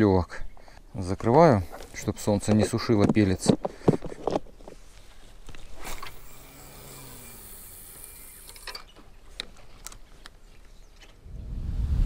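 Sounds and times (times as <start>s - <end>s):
handling clicks and knocks: 1.2s - 4.8s
rustling hiss: 4.7s - 8.9s.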